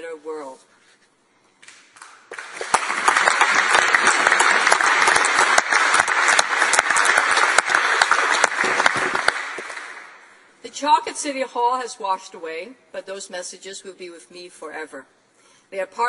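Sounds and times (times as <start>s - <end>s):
people applauding: 1.7s - 10.3s.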